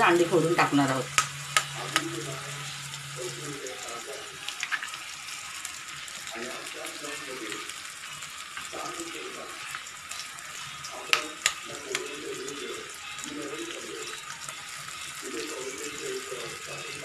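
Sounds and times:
masala sizzling in a wok: 0.0 - 17.0.

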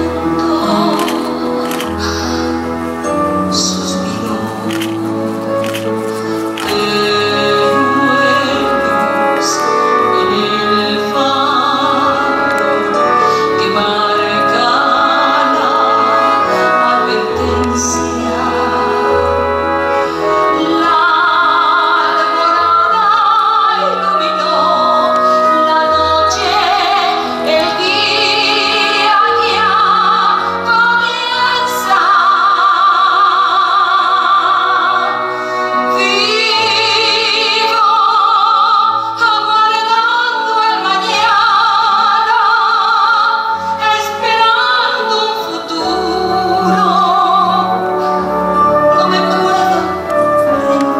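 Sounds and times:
woman singing a slow ballad: 0.0 - 2.7
instrumental accompaniment: 0.0 - 50.9.

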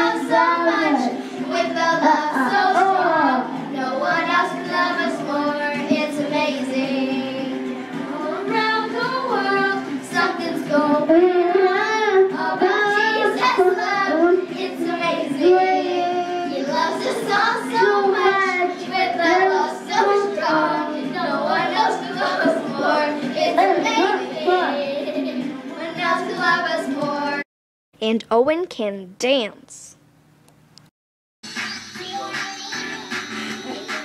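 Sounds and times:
children singing along: 0.0 - 27.4
toddler singing into microphone: 8.4 - 25.4.

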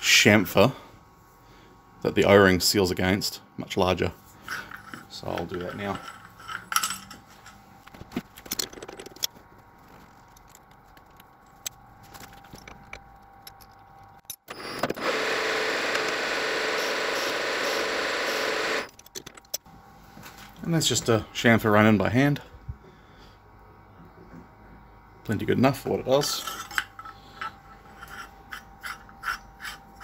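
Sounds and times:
tools clicking and rattling: 4.5 - 9.4, 18.8 - 19.7, 26.2 - 30.0
metal lathe running: 15.0 - 18.9.

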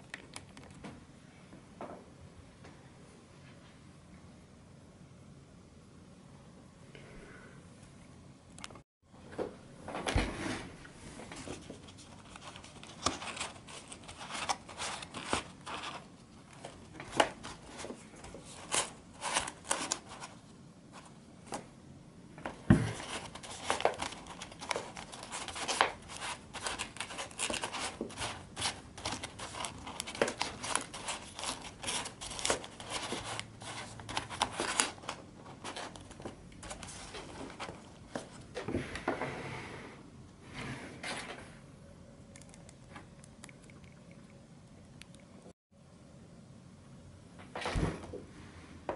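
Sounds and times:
paper clicks and rustles: 11.3 - 20.4, 22.4 - 38.4.

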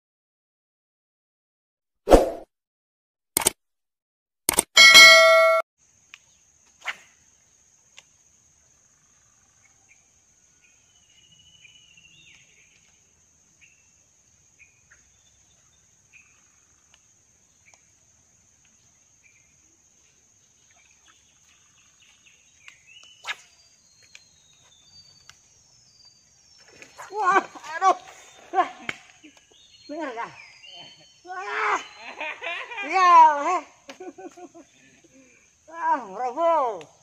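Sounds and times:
small clicks: 3.4 - 3.6, 4.5 - 4.7
bright bell ding: 4.8 - 5.6
high insect tone: 5.8 - 37.0.

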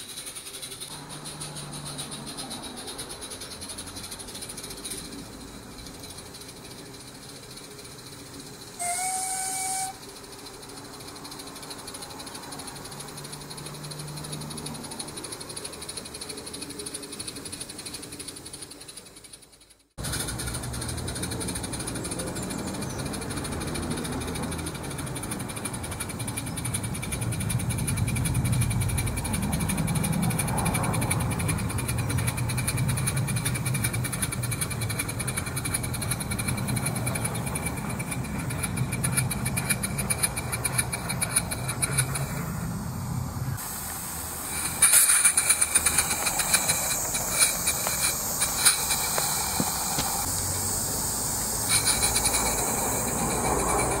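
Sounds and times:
fast steam exhaust beats: 0.0 - 54.0
steam hissing: 0.0 - 54.0
wheels rumbling on track: 0.0 - 54.0
sharp clicks: 10.4 - 42.4, 44.5 - 50.3, 51.6 - 54.0.

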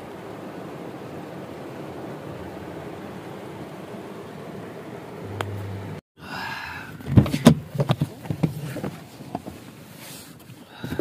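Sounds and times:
rain hissing on a car: 0.0 - 5.2
phone handling knocks and rustles: 7.0 - 9.6.

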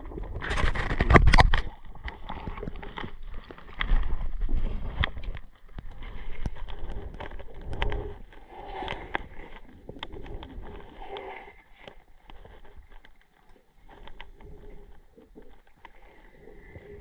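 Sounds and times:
low rumble of moving water: 0.0 - 17.0
clicks and knocks on camera housing: 0.6 - 1.7.

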